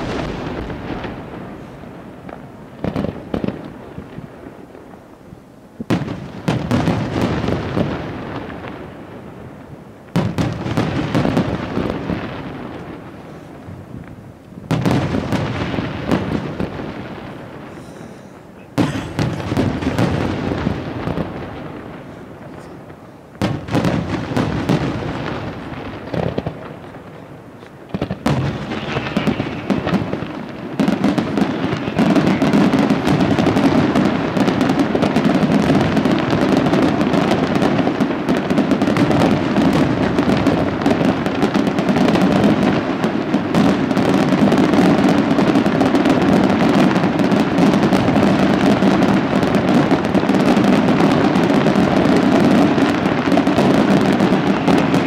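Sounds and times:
firework crackle: 0.0 - 55.0
firework shells bursting: 27.7 - 35.8.

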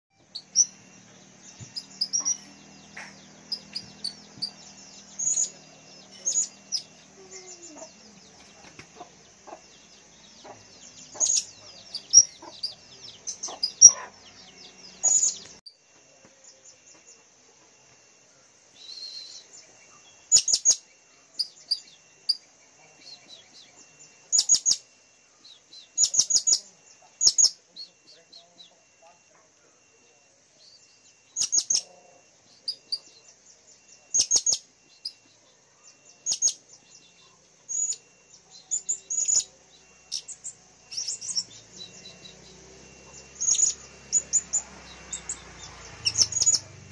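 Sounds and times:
parrots chirping shrilly: 11.1 - 14.3.

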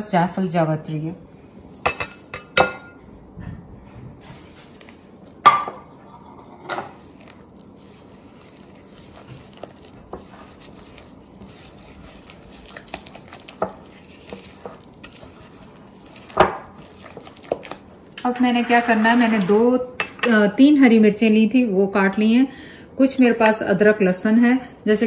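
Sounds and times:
spatula scraping glass bowl: 4.6 - 19.8.

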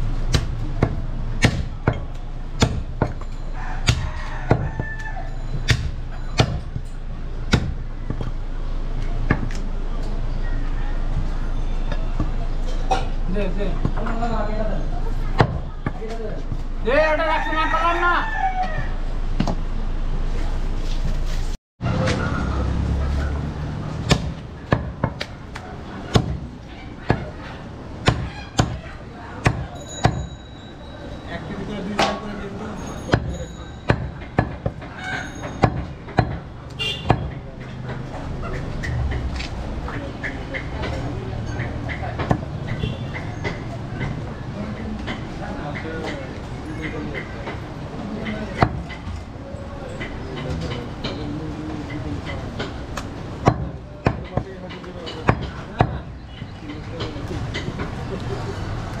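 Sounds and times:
cleaver chopping meat on wood: 0.3 - 3.2, 3.8 - 5.0, 5.6 - 6.6, 7.4 - 8.4, 23.9 - 26.5, 28.0 - 28.8, 29.4 - 30.2, 33.9 - 34.9, 35.6 - 38.0, 48.5 - 49.1, 52.6 - 56.1.

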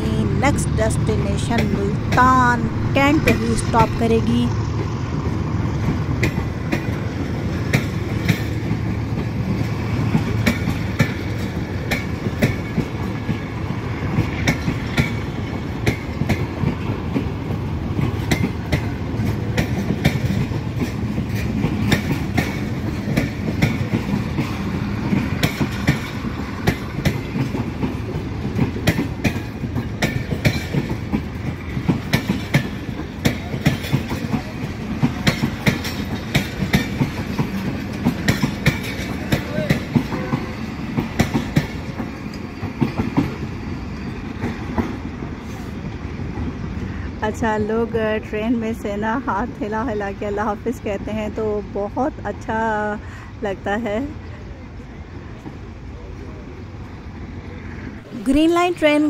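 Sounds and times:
train coaches rumbling past: 0.0 - 59.0
wheels clicking over rail joints: 4.7 - 45.6.

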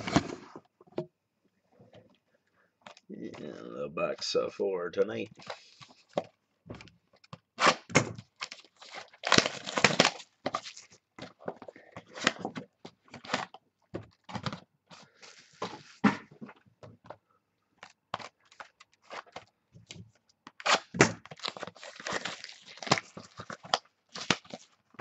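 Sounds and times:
plastic wrap crinkling: 8.2 - 11.5, 20.6 - 24.8.

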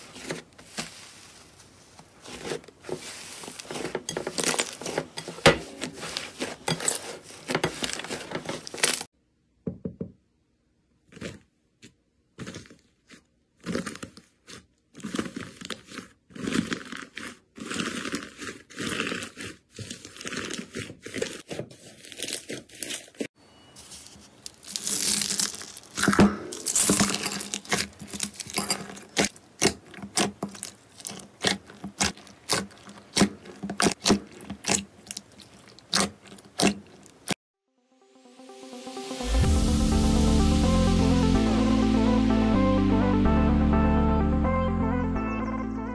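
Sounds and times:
slime crackling and popping: 5.8 - 9.1, 24.4 - 37.3.

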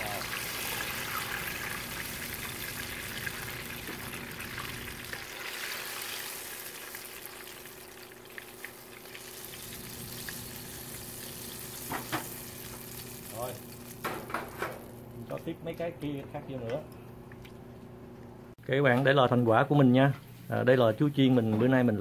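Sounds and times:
fritters sizzling in hot oil: 0.0 - 14.4.

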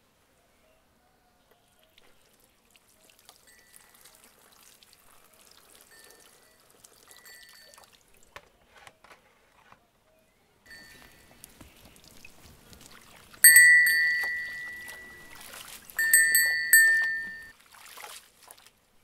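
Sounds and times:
water splashing trickle: 1.8 - 8.4, 10.7 - 19.0.

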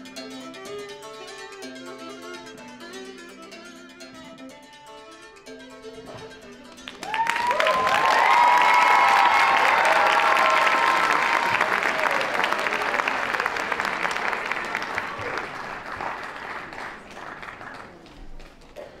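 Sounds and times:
held music notes: 0.0 - 17.4
audience clapping: 6.7 - 19.0.

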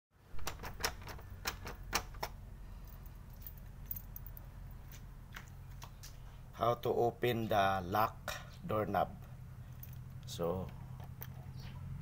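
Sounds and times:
door lock clicking: 0.4 - 2.4
keys rattling: 2.8 - 5.0, 9.7 - 10.2.

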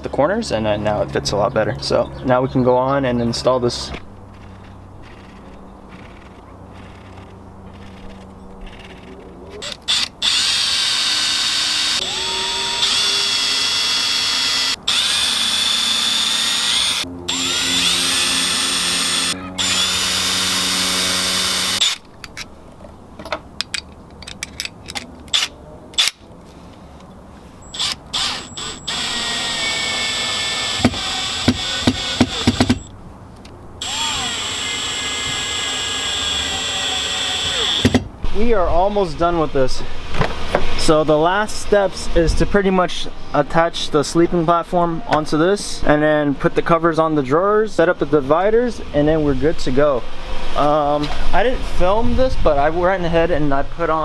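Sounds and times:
power drill whining: 9.6 - 22.0, 27.6 - 32.9, 33.8 - 38.0.

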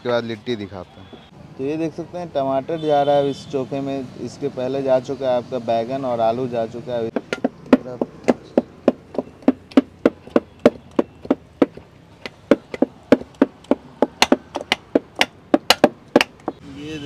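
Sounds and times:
utensil knocking rhythmically: 7.1 - 16.6.

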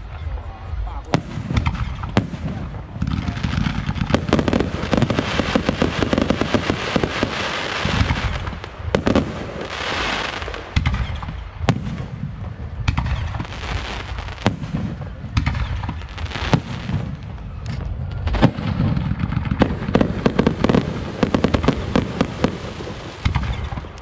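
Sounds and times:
fireworks crackling and hissing: 0.8 - 24.0
fireworks bangs: 1.1 - 24.0.

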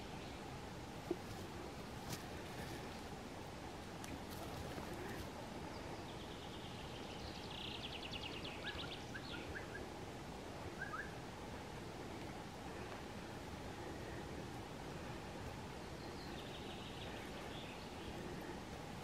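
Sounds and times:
faint background hiss: 0.0 - 19.0
songbird trilling and chirping: 5.7 - 9.8, 15.8 - 18.2.

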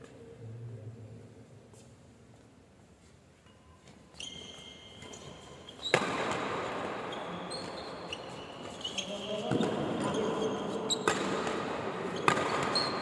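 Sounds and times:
shoes squeaking on court floor: 3.0 - 13.0
rackets striking shuttlecock: 5.9 - 6.6, 11.0 - 13.0.

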